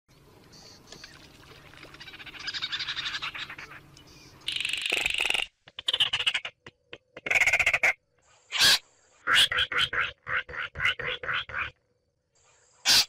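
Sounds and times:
bird rattling trill: 0:04.5 - 0:06.5.

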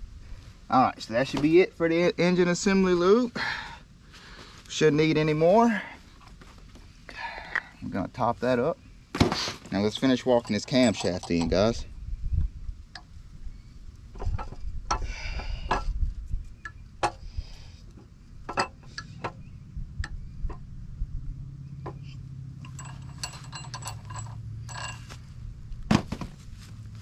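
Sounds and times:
low steady hum: 0:00.0 - 0:27.0
camshaft clinking in engine block: 0:09.8 - 0:11.9, 0:21.9 - 0:25.2.

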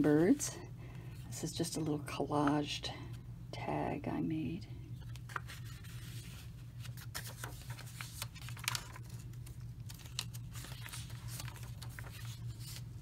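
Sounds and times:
low steady hum: 0:00.0 - 0:13.0
paper pages rustling: 0:05.0 - 0:13.0.

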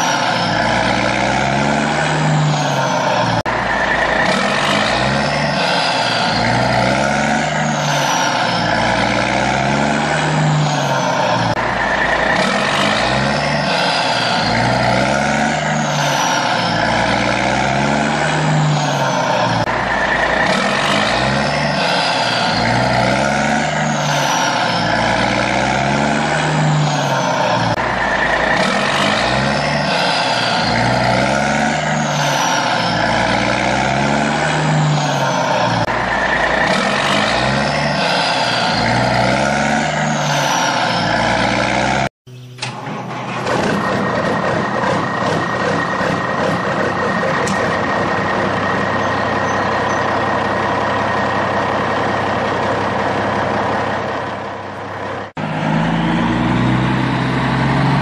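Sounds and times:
steady engine with high tone: 0:00.0 - 0:58.0
truck engine rising and falling: 0:00.0 - 0:58.0.

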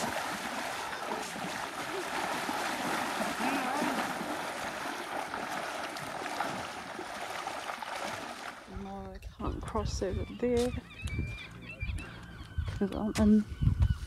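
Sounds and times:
rush of moving water: 0:00.0 - 0:08.9.

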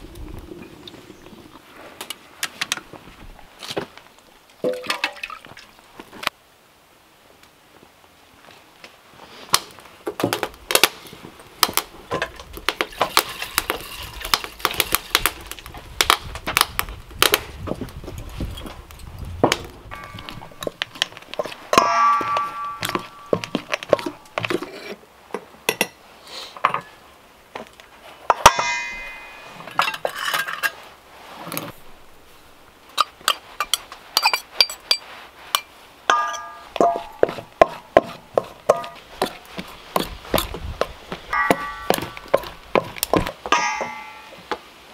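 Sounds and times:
metal bowl ringing: 0:19.9 - 0:20.8, 0:21.7 - 0:23.7, 0:28.5 - 0:29.7, 0:36.1 - 0:37.2, 0:41.4 - 0:42.6, 0:43.5 - 0:44.4.

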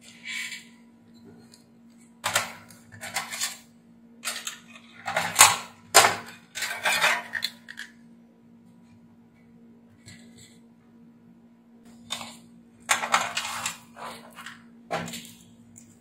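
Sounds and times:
metal and plastic clattering: 0:12.9 - 0:15.1.

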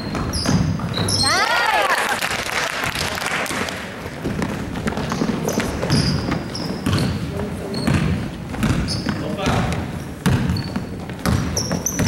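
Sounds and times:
basketball bouncing: 0:00.0 - 0:01.2, 0:04.0 - 0:12.0
sneaker squeaks on floor: 0:00.0 - 0:01.5, 0:04.4 - 0:12.0.

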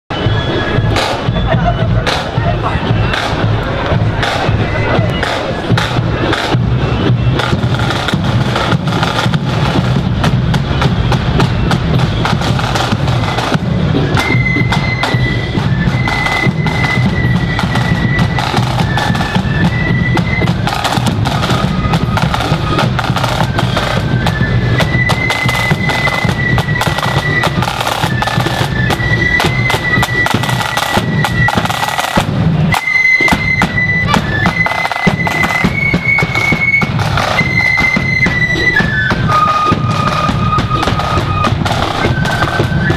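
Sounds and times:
flute melody: 0:00.1 - 0:42.9
snare and bass drum beats: 0:00.1 - 0:42.9.

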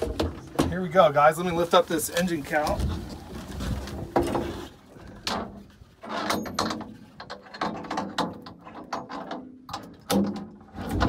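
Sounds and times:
hatch cover knocks and clunks: 0:00.0 - 0:01.1.

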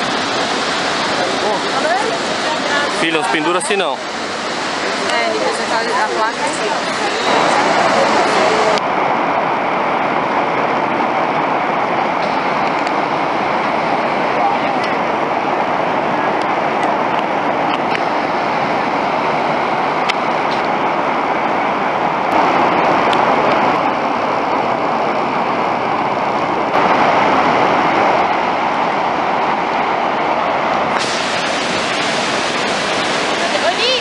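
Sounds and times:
waterfall rushing: 0:00.0 - 0:34.0.

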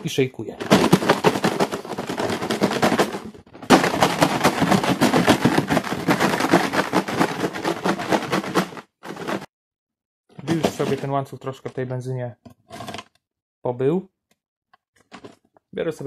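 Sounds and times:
chain rattling in shaken bottle: 0:00.6 - 0:09.5.

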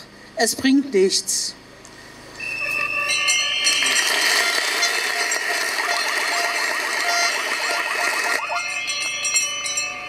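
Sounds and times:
steady high tone: 0:02.3 - 0:10.0
rattling hand-held noisemakers: 0:03.1 - 0:10.0
crowd applause: 0:03.7 - 0:08.7.

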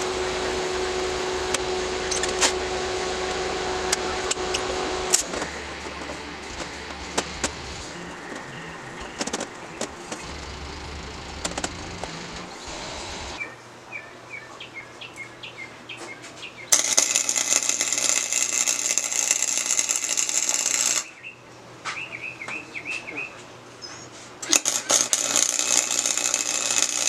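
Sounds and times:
welder arc crackling and hissing: 0:00.0 - 0:13.4, 0:16.7 - 0:21.1, 0:24.3 - 0:27.0.

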